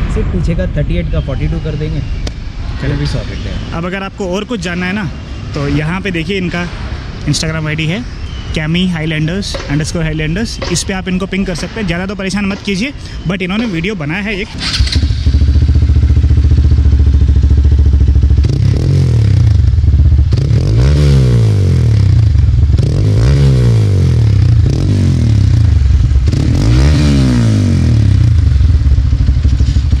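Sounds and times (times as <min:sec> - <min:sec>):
motorcycle engine idling and revving: 0:09.4 - 0:30.0.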